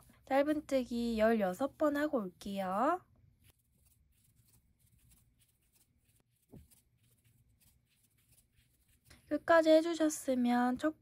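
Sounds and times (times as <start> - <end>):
crochet hook working yarn: 3.4 - 9.4.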